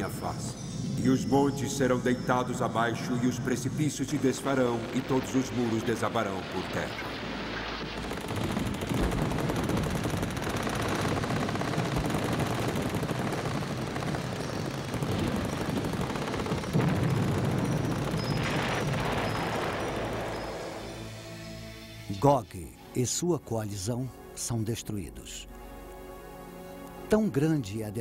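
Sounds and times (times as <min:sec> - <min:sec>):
explosions: 0:04.1 - 0:12.5, 0:16.6 - 0:20.8
rapid gunfire: 0:04.5 - 0:20.3.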